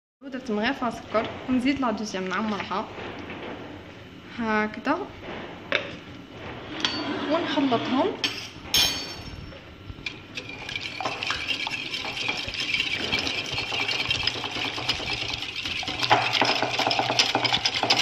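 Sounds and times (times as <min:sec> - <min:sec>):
whisk rattling in glass bowl: 0:10.0 - 0:18.0.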